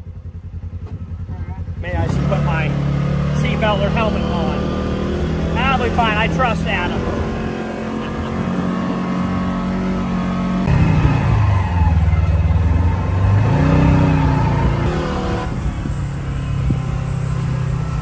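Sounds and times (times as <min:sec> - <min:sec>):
off-road vehicle engine driving: 0:00.0 - 0:18.0.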